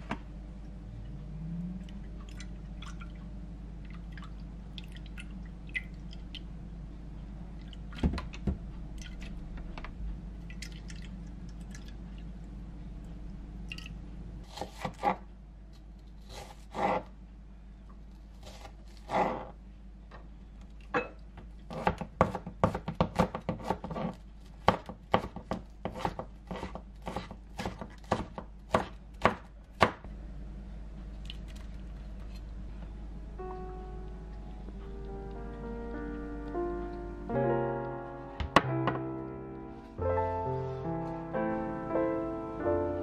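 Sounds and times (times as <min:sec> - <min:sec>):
glass clinks: 0:21.0 - 0:21.2
knife chopping on cutting board: 0:21.7 - 0:30.0.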